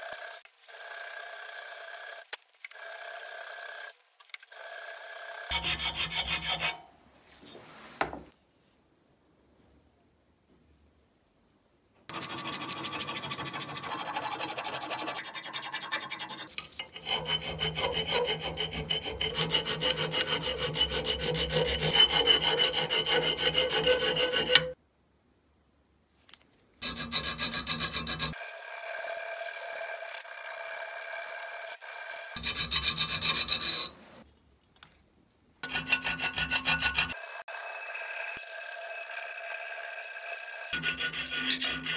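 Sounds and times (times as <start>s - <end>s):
hand file rasping on steel: 5.5s - 6.9s, 12.1s - 24.8s, 26.8s - 28.4s, 32.4s - 34.0s, 35.6s - 37.2s, 40.7s - 41.9s.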